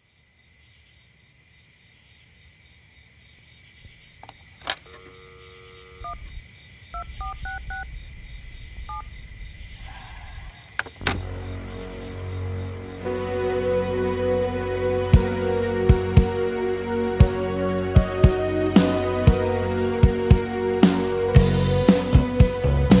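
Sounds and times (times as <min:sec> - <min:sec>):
telephone dialing beeps: 0:04.8 - 0:06.3, 0:07.0 - 0:07.8
steady high hiss: 0:05.0 - 0:23.0
low rumble: 0:07.0 - 0:13.0.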